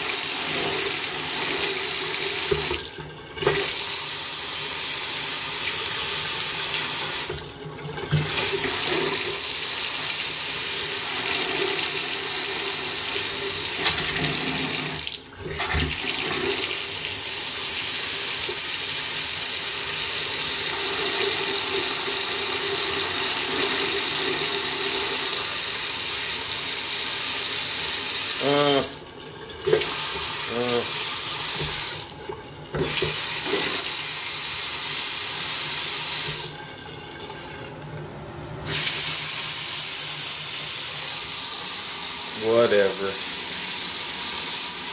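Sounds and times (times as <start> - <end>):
tap water splashing into sink: 0.0 - 3.8, 6.7 - 9.4, 11.2 - 16.8, 28.9 - 34.0, 36.1 - 37.3.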